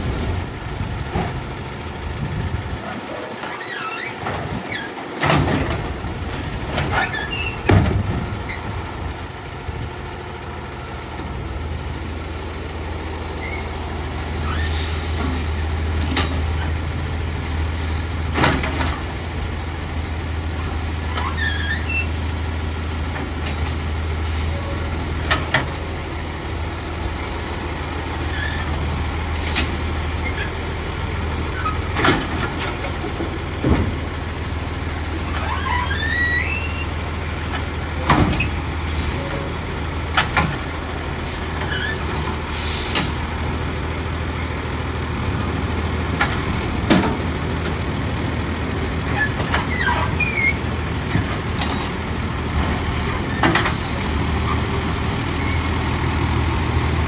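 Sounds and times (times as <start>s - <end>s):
garbage truck engine drone: 0.0s - 57.0s.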